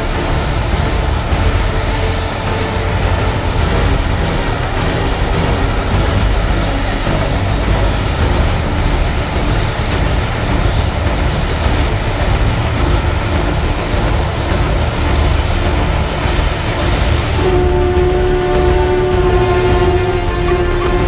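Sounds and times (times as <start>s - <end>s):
low rumble: 0.0s - 21.0s
steam hissing: 0.0s - 21.0s.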